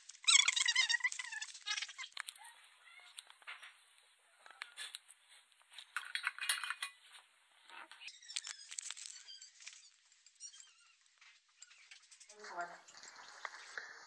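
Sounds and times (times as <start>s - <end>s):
clicks and clinks against a plate: 6.0s - 7.0s.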